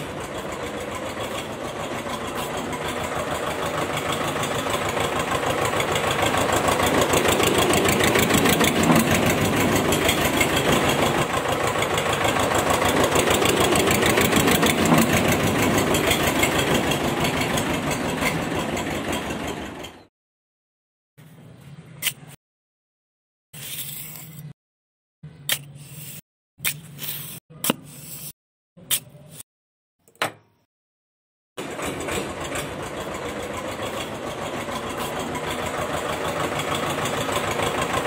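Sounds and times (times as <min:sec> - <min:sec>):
tractor engine knocking: 0:00.0 - 0:20.1, 0:31.6 - 0:38.0.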